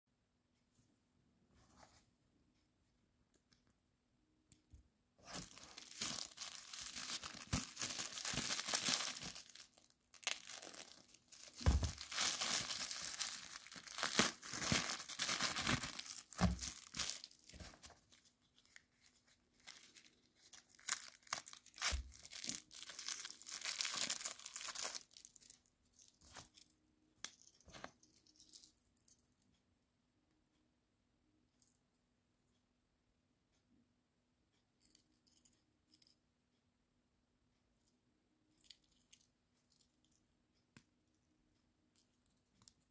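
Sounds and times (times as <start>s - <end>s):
plastic packaging crinkling: 5.2s - 26.6s.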